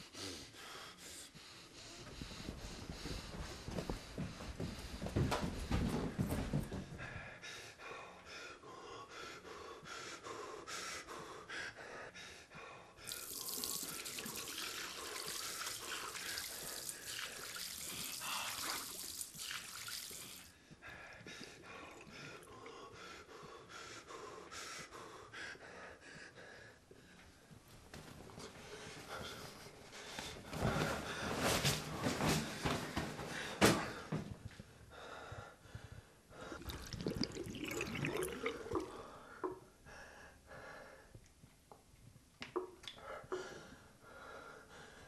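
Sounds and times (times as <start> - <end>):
water splashing and dripping: 13.1 - 20.5, 36.6 - 39.0.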